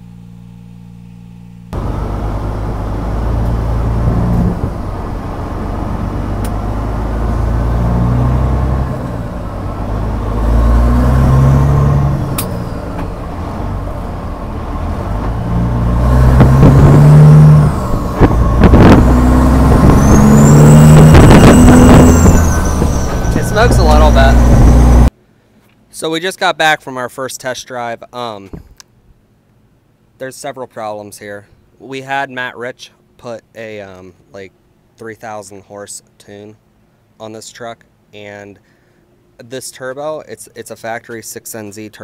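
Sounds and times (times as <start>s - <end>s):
diesel truck engine driving: 1.7s - 25.1s
high rising whistle: 1.8s - 25.1s.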